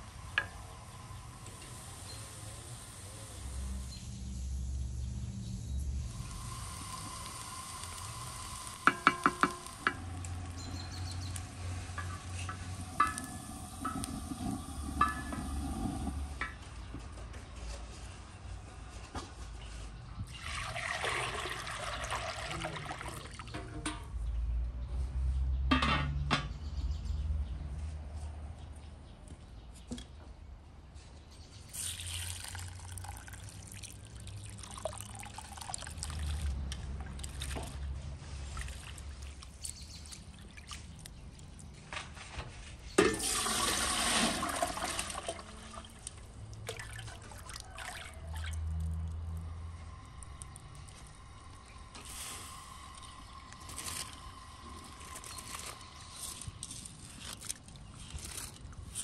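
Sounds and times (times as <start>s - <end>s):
water pouring and splashing: 5.9s - 16.6s, 20.2s - 23.7s, 31.7s - 42.2s, 42.8s - 59.0s.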